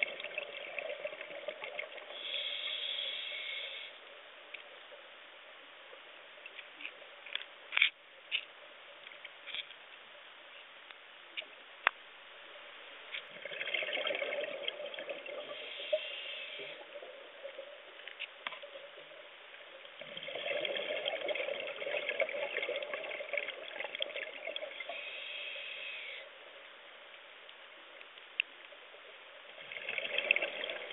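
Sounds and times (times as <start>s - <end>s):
underwater bubbles gurgling: 0.0s - 3.8s, 13.3s - 26.1s, 28.9s - 30.9s.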